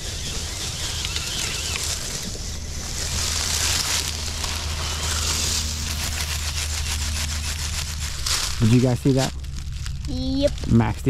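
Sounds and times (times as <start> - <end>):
electric motor hum: 0.0 - 10.8
leaves crunching under tyres: 0.0 - 11.0.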